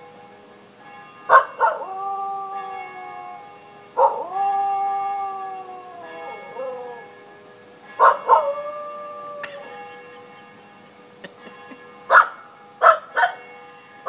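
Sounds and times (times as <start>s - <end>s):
church bells ringing: 0.0s - 14.0s
dog howling: 1.3s - 3.4s, 4.0s - 7.2s, 8.0s - 9.7s
dog yelping: 4.0s - 7.0s, 8.0s - 8.6s, 12.1s - 13.4s.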